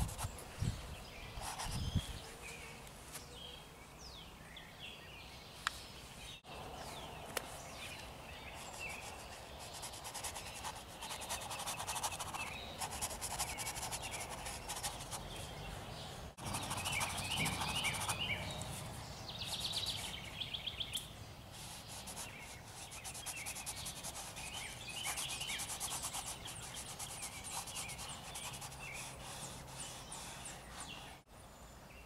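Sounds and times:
small birds chirping: 0.0 - 32.0
fingertip rubbing paint on canvas: 8.6 - 15.3, 16.4 - 18.2, 21.6 - 31.2.

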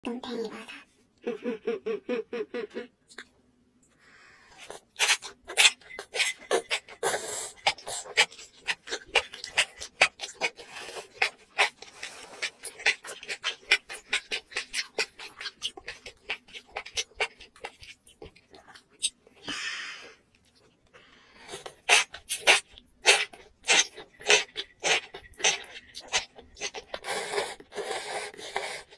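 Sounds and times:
wet crisp chewing: 4.6 - 19.2, 21.5 - 28.9.

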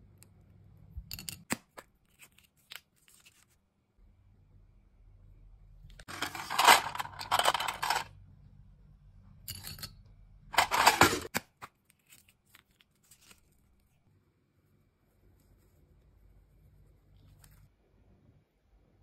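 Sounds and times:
packaging rustling and clattering: 6.1 - 8.1, 10.6 - 11.3.

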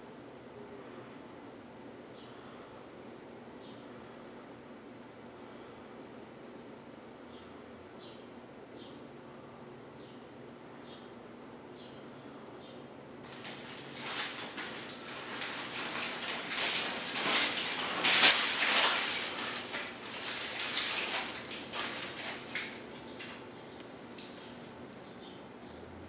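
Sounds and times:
foil sheet crinkling: 13.3 - 23.4.

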